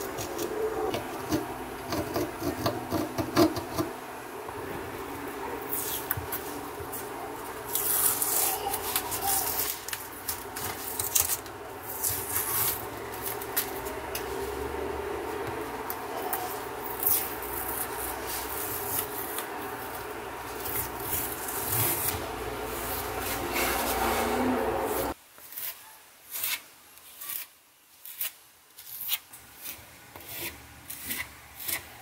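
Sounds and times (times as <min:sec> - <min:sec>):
masking tape peeling: 0:07.6 - 0:14.3, 0:15.9 - 0:25.7.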